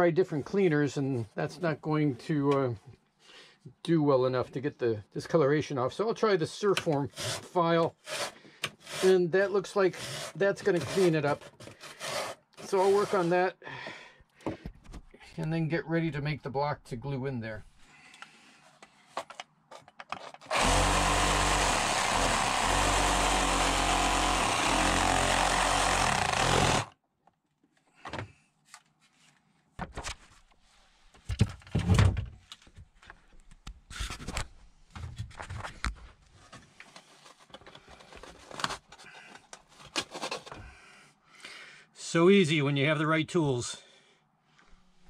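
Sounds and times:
power saw cutting wood: 7.1s - 9.2s, 9.9s - 13.4s, 20.5s - 26.9s.

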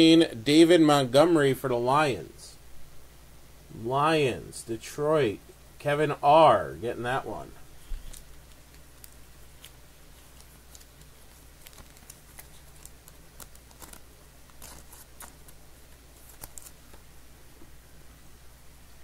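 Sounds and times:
steady low hum: 0.0s - 19.0s
cards rustling: 7.7s - 17.1s.

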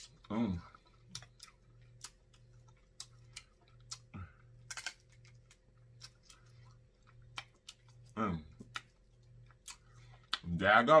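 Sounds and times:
chewing smacks: 0.0s - 4.4s, 5.1s - 10.5s.

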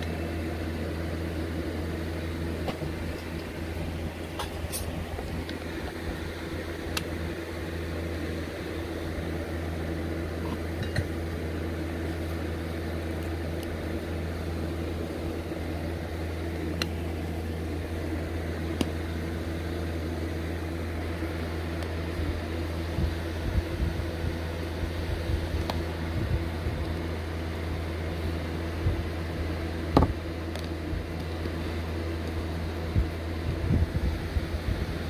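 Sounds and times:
machine humming: 0.0s - 35.0s.

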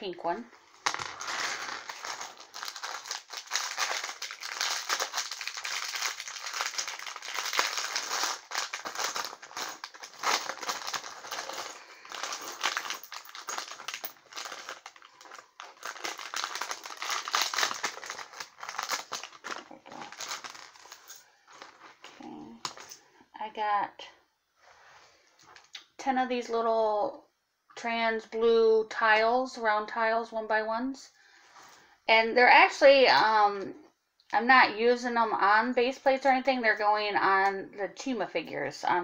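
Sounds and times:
plastic bag crinkling: 0.7s - 23.0s.

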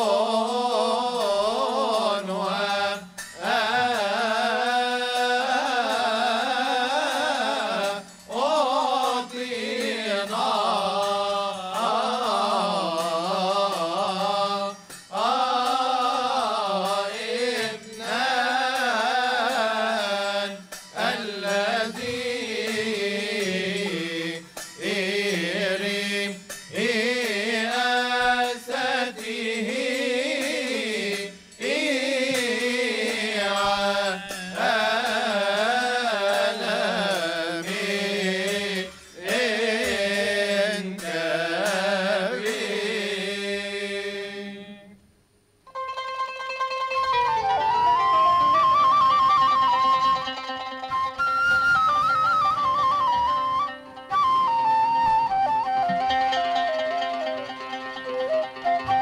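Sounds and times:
hand cymbals ringing: 0.0s - 43.4s
men chanting a hymn: 0.0s - 45.0s.

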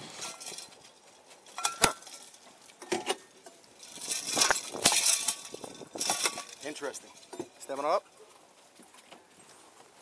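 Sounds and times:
scuffling hiss: 0.0s - 10.0s.

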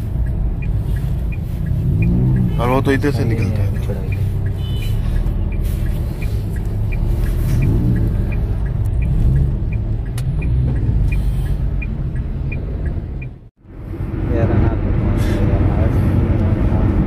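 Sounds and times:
turn signal ticking: 0.0s - 13.6s
engine and road rumble: 0.0s - 17.0s.

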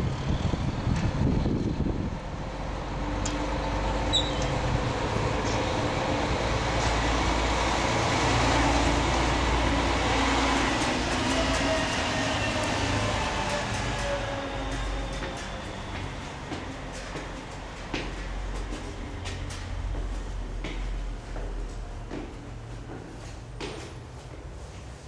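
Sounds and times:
large vehicle rumbling past: 0.0s - 24.1s
brief high squeak: 4.1s - 4.5s.

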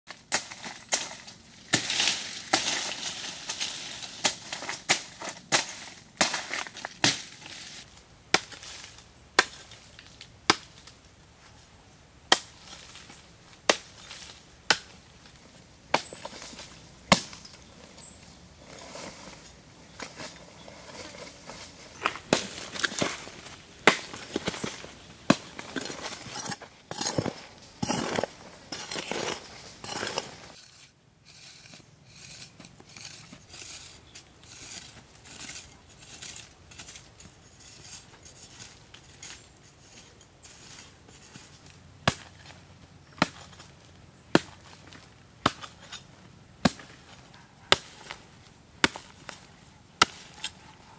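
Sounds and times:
soil crumbling and scraping: 0.1s - 11.6s, 12.3s - 50.7s
hoe chopping into dry earth: 0.2s - 7.4s, 21.9s - 30.6s, 42.0s - 43.7s, 44.3s - 50.6s.

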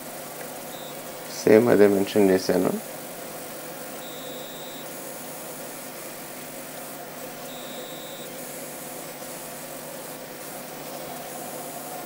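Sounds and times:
background hiss: 0.0s - 12.0s
faint hum: 0.0s - 12.0s
faint thin high tone: 4.0s - 4.9s, 7.5s - 8.4s.

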